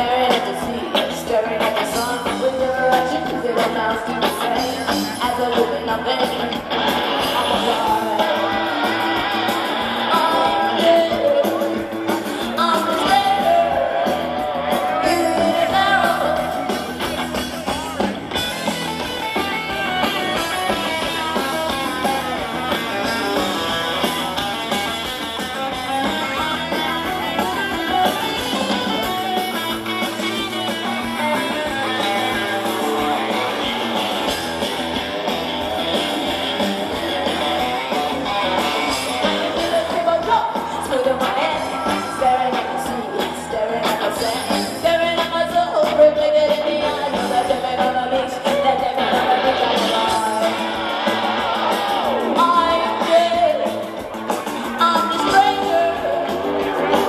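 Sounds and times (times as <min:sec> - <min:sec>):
person singing: 0:00.0 - 0:09.2, 0:10.0 - 0:18.1, 0:37.7 - 0:54.1, 0:54.7 - 0:57.0
electric guitar: 0:00.0 - 0:57.0
live rock band: 0:00.0 - 0:57.0.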